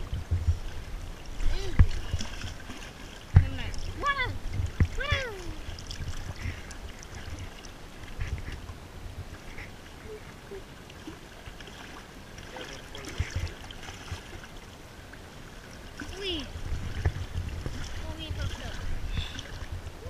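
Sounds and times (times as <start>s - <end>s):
wind rumble on microphone: 0.0s - 10.6s, 16.1s - 20.0s
fish splashing in shallow water: 0.0s - 20.0s.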